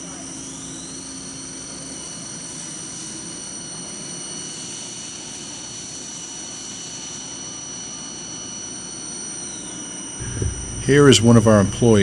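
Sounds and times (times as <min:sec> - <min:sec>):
high-pitched whines: 0:00.0 - 0:12.0
machinery running: 0:10.2 - 0:12.0.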